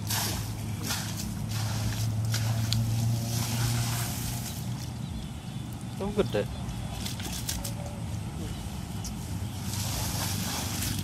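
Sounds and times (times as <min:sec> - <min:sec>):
sharp wet slaps: 0:00.0 - 0:05.0, 0:06.7 - 0:07.8, 0:09.8 - 0:11.0
mud and water splashing: 0:00.0 - 0:11.0
steady low hum: 0:00.0 - 0:11.0.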